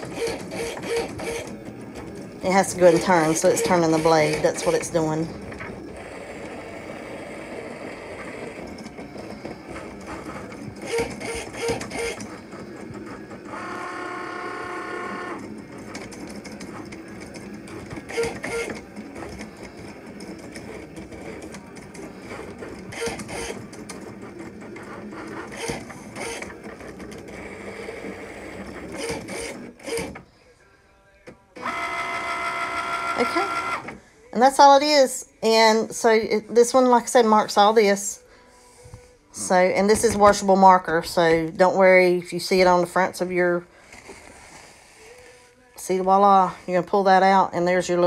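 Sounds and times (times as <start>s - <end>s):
cutting machine motor whirr: 0.0s - 30.2s, 31.6s - 34.0s.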